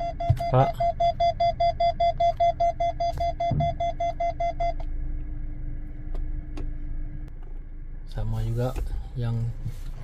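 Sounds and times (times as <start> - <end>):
parking sensor beeping rapidly: 0.0 - 4.8
low steady hum: 0.0 - 10.0.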